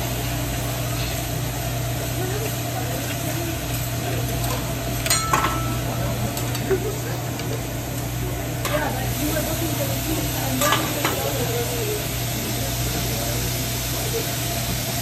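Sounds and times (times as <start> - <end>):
food sizzling on griddle: 0.0 - 15.0
spatula clinking on griddle: 5.0 - 6.8, 10.6 - 11.4.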